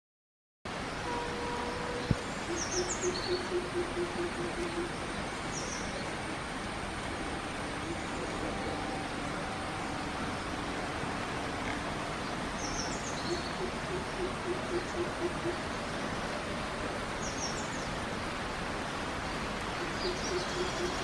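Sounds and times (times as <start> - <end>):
steady background hiss: 0.7 - 21.0
birds chirping: 12.2 - 15.9, 19.7 - 21.0.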